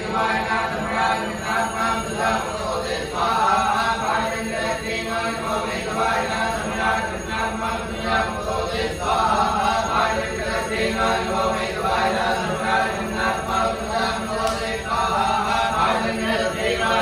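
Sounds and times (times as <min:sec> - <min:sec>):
men chanting mantras: 0:00.0 - 0:17.0.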